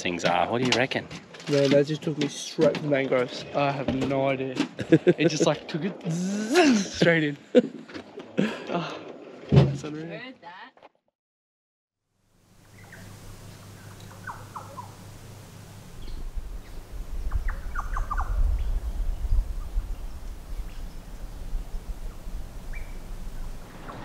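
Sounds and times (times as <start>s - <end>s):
steady low hum: 12.4s - 24.0s
birds chirping: 12.6s - 24.0s
wind rumble on microphone: 15.7s - 24.0s.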